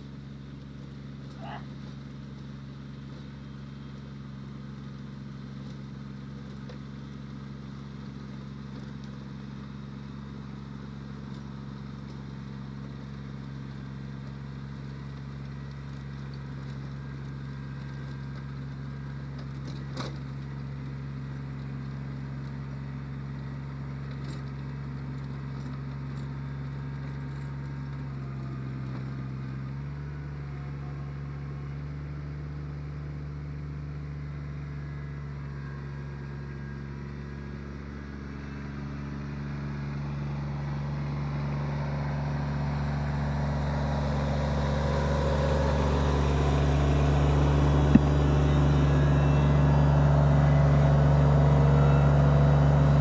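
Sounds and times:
tractor diesel engine mowing grass: 0.0s - 53.0s.

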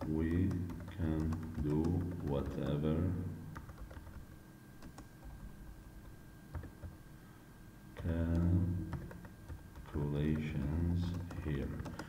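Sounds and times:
person speaking: 0.0s - 3.8s, 8.0s - 12.0s.

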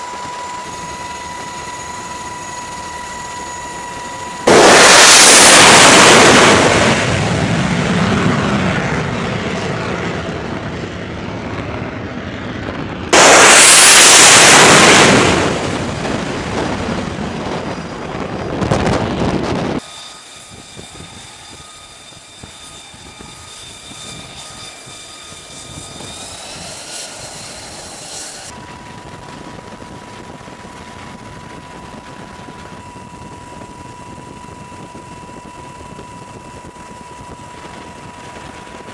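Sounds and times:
jet engine whine: 0.0s - 38.9s
loud jet roar blasts: 0.7s - 19.9s, 20.5s - 30.3s.

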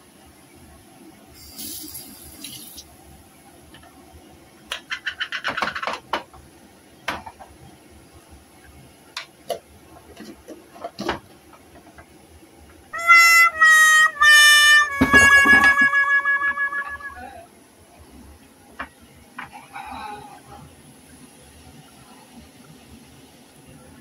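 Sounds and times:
brief hiss: 1.4s - 2.8s
music jingle: 13.0s - 17.4s.

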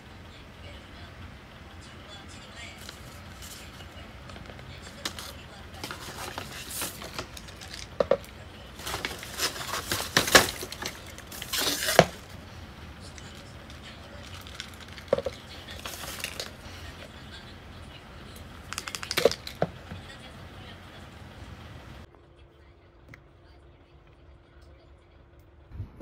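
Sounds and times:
rustling bursts: 2.6s - 17.4s.

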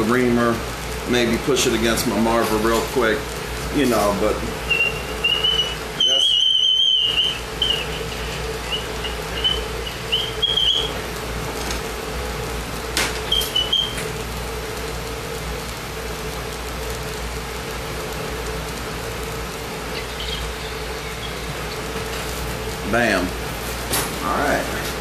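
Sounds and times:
torch hissing and humming: 0.0s - 25.0s
high whistling tones: 4.6s - 11.1s, 13.2s - 14.1s.

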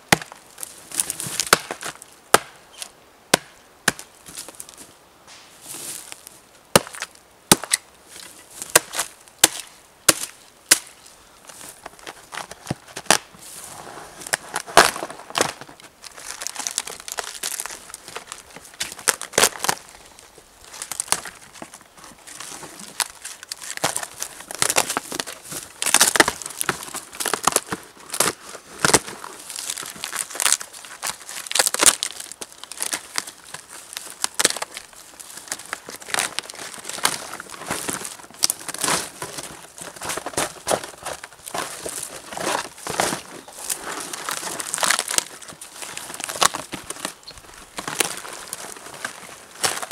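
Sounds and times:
hatchet chopping log: 0.1s - 0.4s, 1.4s - 2.6s, 3.3s - 4.1s, 6.8s - 7.8s, 8.7s - 11.0s
bark crackling and tearing: 14.2s - 49.9s.

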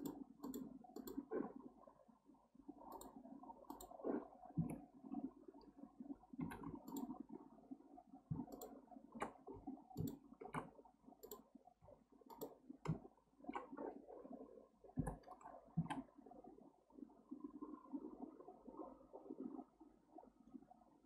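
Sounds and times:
mouse and keyboard clicks: 0.0s - 1.2s, 2.9s - 4.0s, 6.4s - 7.1s, 8.3s - 9.4s, 10.0s - 11.4s, 12.3s - 13.7s.

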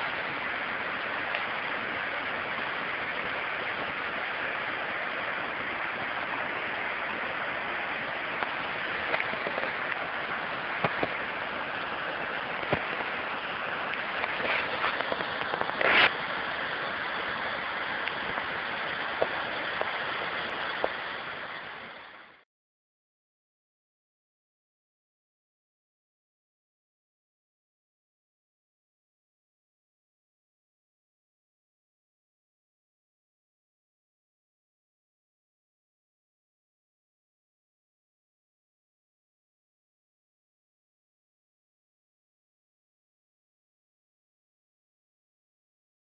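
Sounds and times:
river water rushing over cascade: 0.0s - 22.4s.

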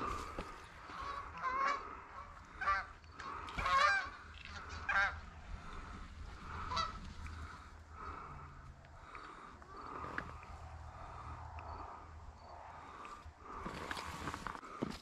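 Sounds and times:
geese honking: 0.0s - 8.3s
murmur of geese: 0.0s - 8.3s.

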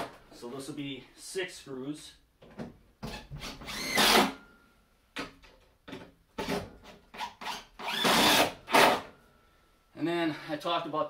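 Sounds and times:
power drill driving screws: 3.4s - 4.4s, 7.1s - 9.1s.

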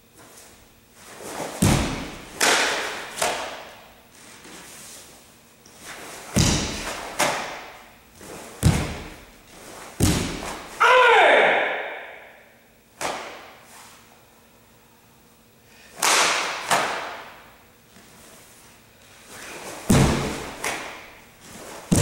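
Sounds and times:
bare feet stamping on wooden floor: 6.4s - 7.6s, 8.6s - 9.3s, 19.8s - 21.1s
cloth uniform snapping: 16.0s - 17.2s.

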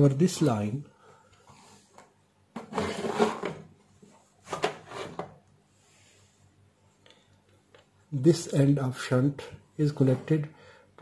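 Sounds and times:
rubbing and scraping handling noise: 1.4s - 6.5s, 9.8s - 10.5s.

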